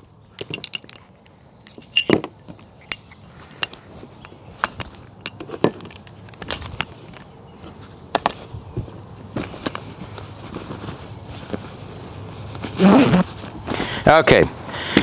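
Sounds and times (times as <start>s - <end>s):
gear clicking and clinking: 0.4s - 2.2s, 2.8s - 7.3s.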